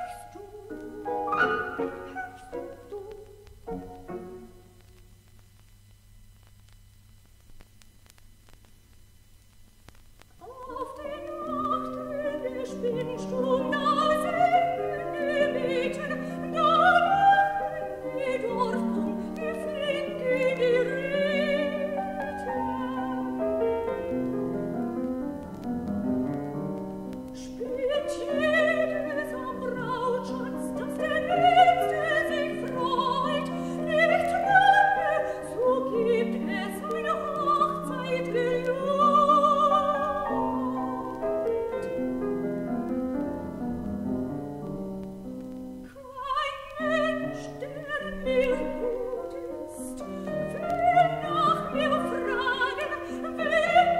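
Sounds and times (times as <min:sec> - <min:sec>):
soprano singing: 0:00.0 - 0:04.6, 0:10.4 - 0:26.4, 0:27.2 - 0:44.4, 0:45.8 - 0:53.9
piano accompaniment: 0:00.0 - 0:04.7, 0:11.4 - 0:45.9
faint low hum: 0:00.0 - 0:53.9.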